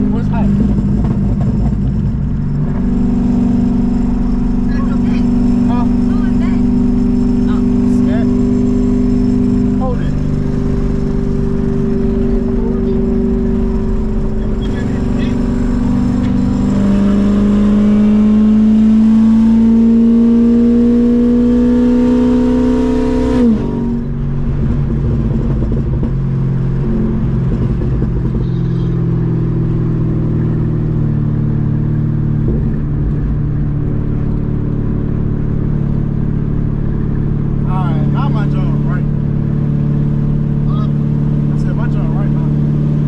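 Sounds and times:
loud car exhaust: 0.0s - 43.0s.

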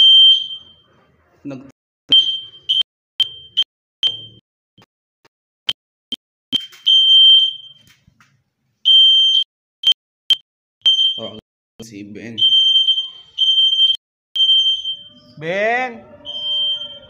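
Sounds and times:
smoke alarm beeping: 0.0s - 0.9s, 2.1s - 4.4s, 6.5s - 7.9s, 8.8s - 11.4s, 12.3s - 15.5s, 16.2s - 17.0s.

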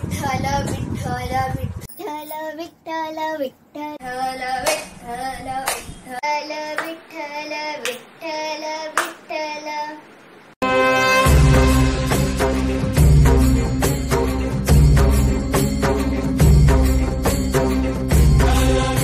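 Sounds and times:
children singing a devotional song: 4.0s - 10.1s
hand claps: 4.6s - 4.9s, 5.6s - 5.9s, 6.7s - 7.0s, 7.8s - 8.1s, 9.0s - 9.2s
recorded music with heavy beat: 10.6s - 19.0s.

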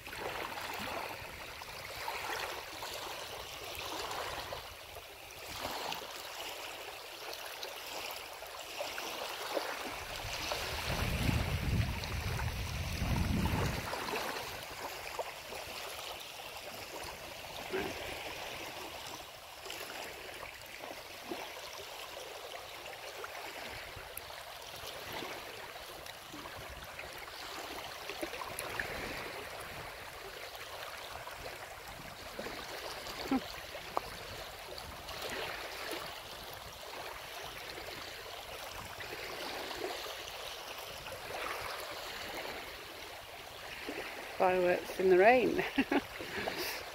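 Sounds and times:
wind buffeting microphone: 10.2s - 14.6s.

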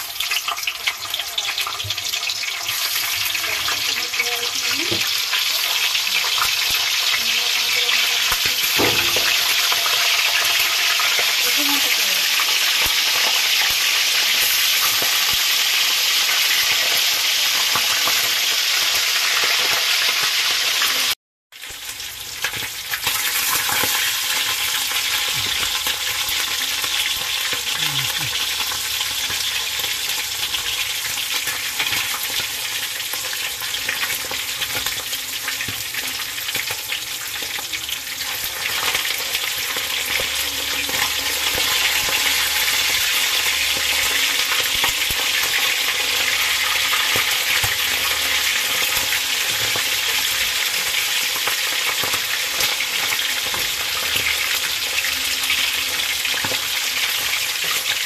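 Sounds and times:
fish sizzling in oil: 0.0s - 58.0s.

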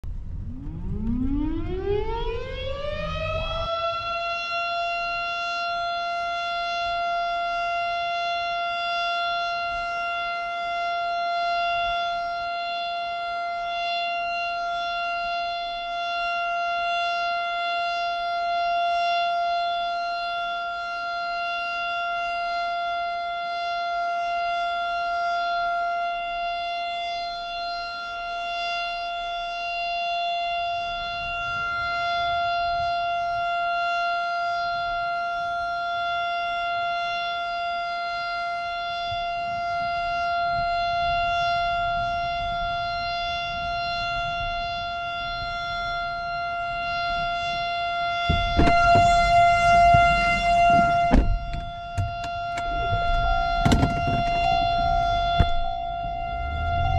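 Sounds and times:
low rumble: 0.0s - 2.9s, 48.3s - 56.9s
warning siren steady tone: 0.0s - 56.9s.

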